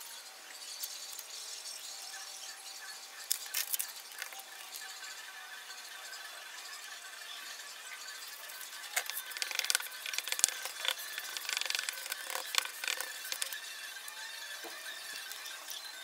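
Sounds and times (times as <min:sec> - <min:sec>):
transfer tape crackling: 0:03.3 - 0:05.0, 0:08.4 - 0:16.0.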